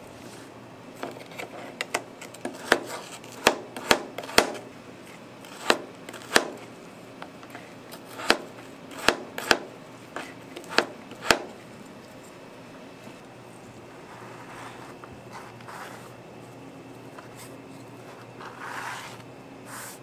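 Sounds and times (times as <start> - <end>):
knife chopping on plastic board: 1.8 - 4.7, 5.5 - 6.7, 8.0 - 11.6.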